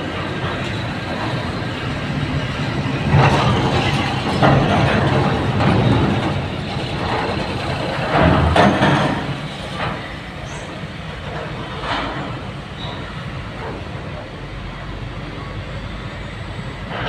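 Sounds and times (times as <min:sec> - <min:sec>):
bus diesel engine rumbling: 0:00.0 - 0:17.0
clattering on steel ramp: 0:03.0 - 0:14.2.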